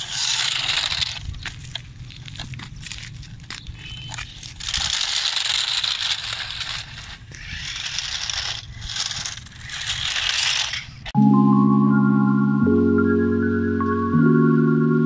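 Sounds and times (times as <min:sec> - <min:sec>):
toy car wheels crunching on grit: 0:00.0 - 0:11.2.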